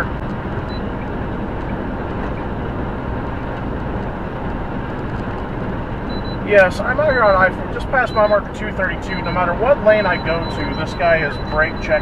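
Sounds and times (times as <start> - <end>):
road and tyre rumble: 0.0 - 12.0
truck engine drone: 0.0 - 12.0.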